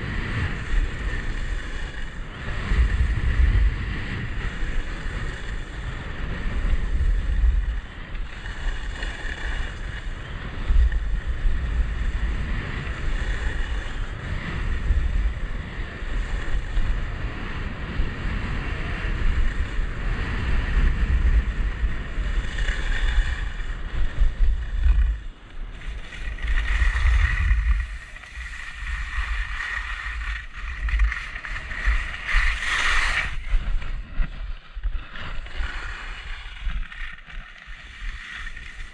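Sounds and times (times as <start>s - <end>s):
skis sliding on snow: 0.0s - 38.9s
wind buffeting microphone: 0.0s - 38.9s
ski edges scraping snow: 19.0s - 38.9s.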